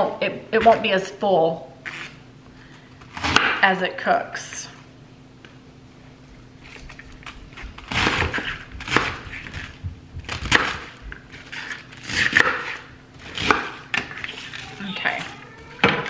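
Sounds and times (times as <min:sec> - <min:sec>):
knife cutting cabbage: 0:06.7 - 0:15.3.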